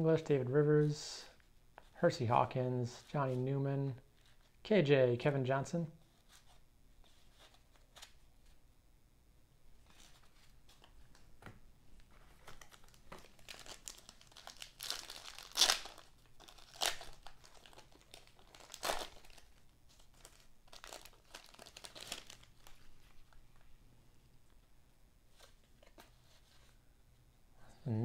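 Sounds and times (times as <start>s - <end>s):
wrapper crinkling and tearing: 12.3s - 23.4s.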